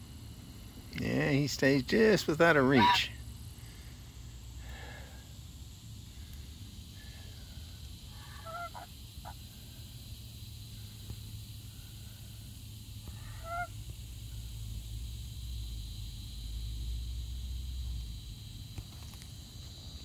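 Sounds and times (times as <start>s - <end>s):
steady low hum: 0.0s - 20.0s
geese honking: 2.8s - 3.1s, 8.2s - 9.4s, 13.2s - 13.8s.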